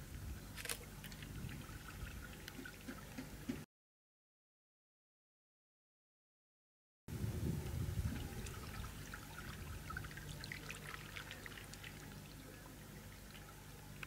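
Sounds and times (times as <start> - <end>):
small waves lapping against jetty: 7.9 - 14.0.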